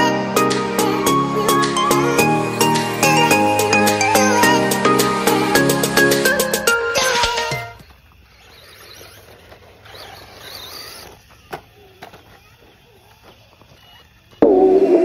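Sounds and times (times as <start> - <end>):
faint outdoor background noise: 6.6 - 15.0.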